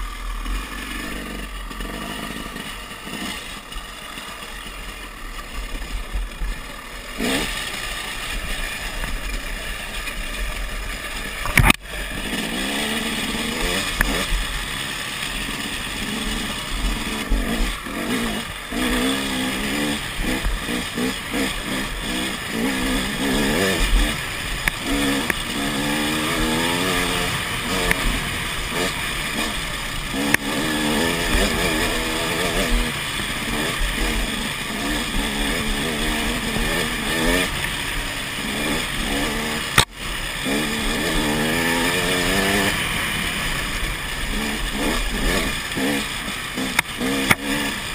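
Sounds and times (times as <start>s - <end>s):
dirt bike engine revving: 0.0s - 47.9s.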